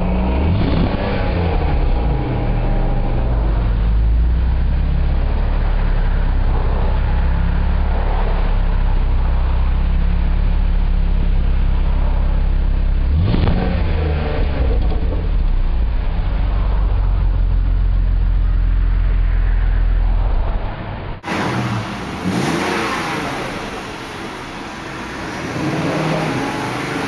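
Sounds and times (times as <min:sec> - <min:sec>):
engine revving: 0:00.0 - 0:03.8, 0:13.0 - 0:15.6, 0:21.2 - 0:27.0
car engine idling: 0:01.3 - 0:13.3, 0:14.2 - 0:20.4, 0:21.2 - 0:27.0.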